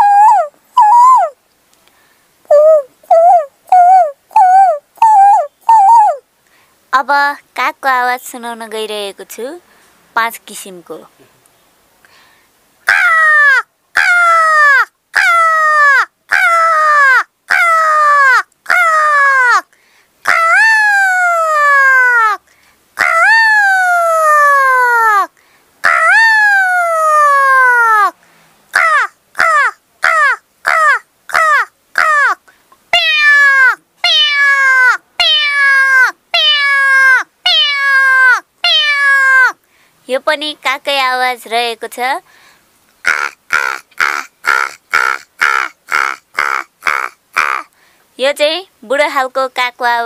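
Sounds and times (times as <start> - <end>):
person imitating crow caws: 0.0 - 1.4, 12.8 - 22.4, 23.0 - 39.6, 43.0 - 47.8.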